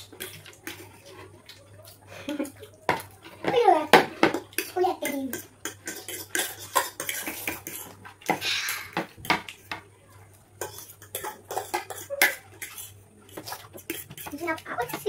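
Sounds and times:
forks scraping on plates: 0:04.2 - 0:09.1, 0:10.6 - 0:15.0.

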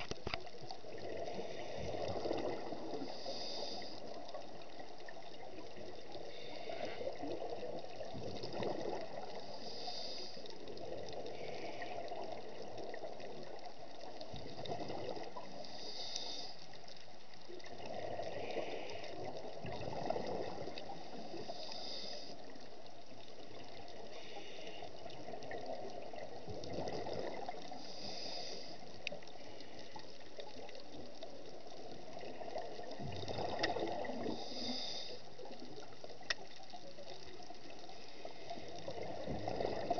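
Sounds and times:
gurgle of exhaled bubbles: 0:00.0 - 0:03.2, 0:07.1 - 0:09.5, 0:10.7 - 0:15.6, 0:17.6 - 0:21.4, 0:25.0 - 0:27.8, 0:30.4 - 0:34.7, 0:38.5 - 0:39.9
regulator inhale hiss: 0:02.8 - 0:04.5, 0:06.2 - 0:07.4, 0:09.2 - 0:12.2, 0:15.4 - 0:17.0, 0:18.1 - 0:19.4, 0:20.8 - 0:22.7, 0:24.0 - 0:25.2, 0:27.4 - 0:30.2, 0:33.9 - 0:35.6.

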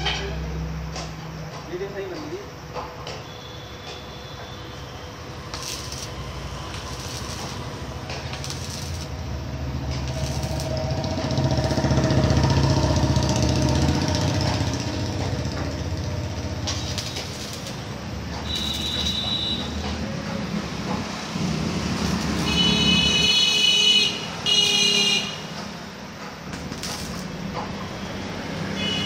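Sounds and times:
arc welding crackling bursts: 0:04.7 - 0:20.0, 0:20.7 - 0:25.8, 0:26.5 - 0:27.5.

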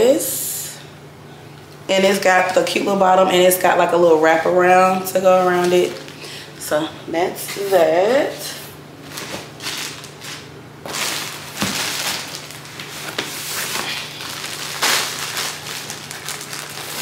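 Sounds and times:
plastic packaging crinkling: 0:09.1 - 0:17.0.

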